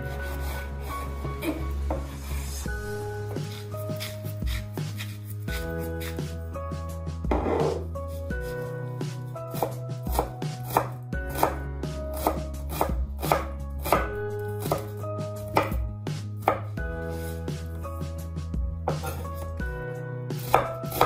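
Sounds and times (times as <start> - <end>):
knife chopping on wooden board: 3.4 - 6.2, 9.5 - 14.9, 15.5 - 15.8, 16.4 - 16.7, 20.4 - 21.0.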